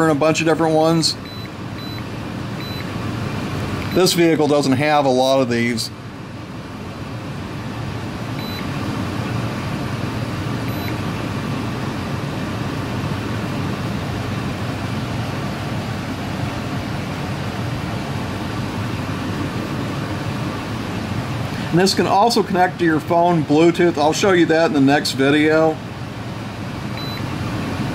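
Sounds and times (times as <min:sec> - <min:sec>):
low mechanical drone: 0:00.0 - 0:27.9
short high beeps: 0:01.2 - 0:02.0, 0:02.6 - 0:02.9, 0:08.4 - 0:08.7, 0:10.7 - 0:11.0, 0:27.0 - 0:27.2.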